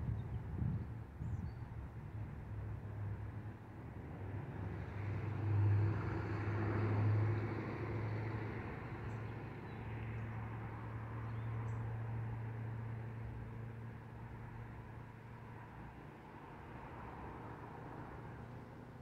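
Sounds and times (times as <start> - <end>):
traffic engine hum: 0.0 - 19.0
vehicle passing: 5.0 - 13.9.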